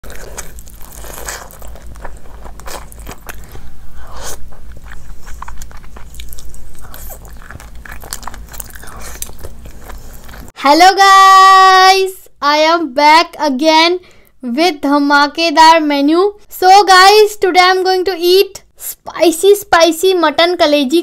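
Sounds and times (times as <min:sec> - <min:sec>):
chewing with wet mouth sounds: 0:00.0 - 0:10.6.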